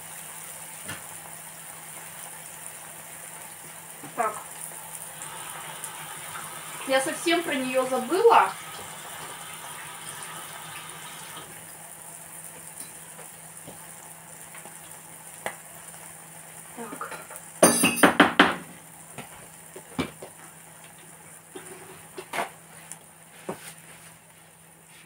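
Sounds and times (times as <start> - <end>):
kitchen tap running: 3.4 - 11.8, 16.7 - 22.3
dishes and utensils clattering: 16.9 - 18.6.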